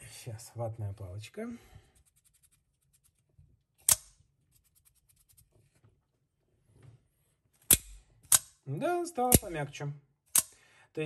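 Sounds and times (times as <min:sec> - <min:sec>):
knife blade snapping: 0:07.7 - 0:08.5.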